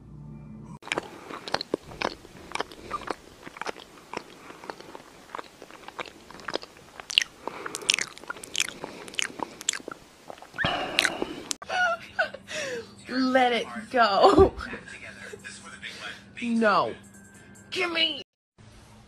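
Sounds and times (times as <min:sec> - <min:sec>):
cat licking and biting paw: 0:00.8 - 0:11.6.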